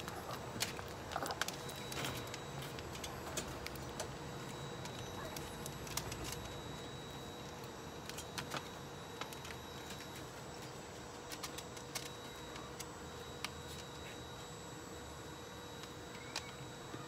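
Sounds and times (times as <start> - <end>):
dog crunching dry kibble: 0.0 - 14.1
faint steady hum: 0.0 - 17.0.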